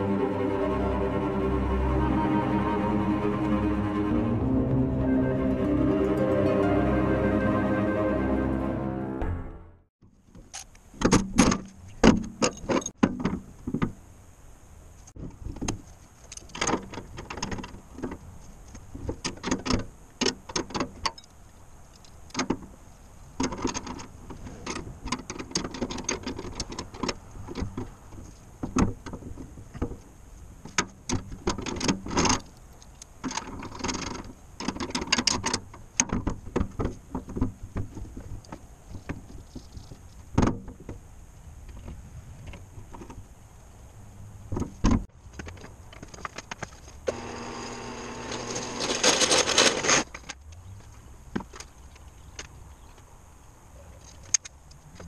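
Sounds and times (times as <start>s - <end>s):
metal parts knocking and clattering: 10.5s - 13.8s, 48.8s - 50.4s
rustling: 20.9s - 44.0s, 44.7s - 53.1s.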